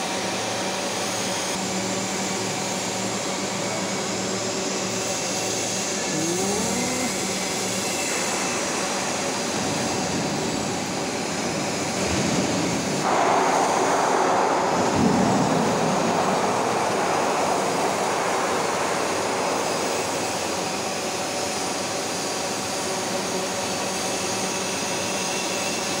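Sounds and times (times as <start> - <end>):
industrial machinery noise: 0.0 - 26.0
short rising whine: 6.0 - 7.9.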